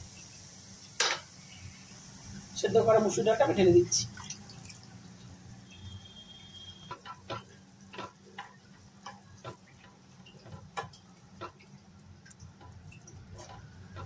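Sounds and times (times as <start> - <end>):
spatula stirring wet food: 6.2 - 14.0
spatula tapping and scraping pan: 6.5 - 14.0.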